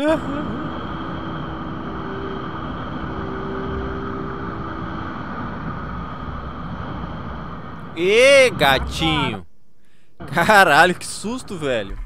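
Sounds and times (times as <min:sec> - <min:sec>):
motorcycle engine hum: 0:00.0 - 0:09.4
wind and road noise: 0:00.0 - 0:09.4.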